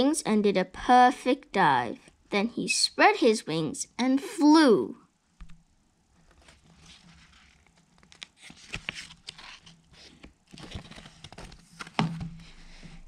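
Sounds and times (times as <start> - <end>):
paper rustling and crackling: 6.2 - 12.5
book pages turning: 6.2 - 12.6.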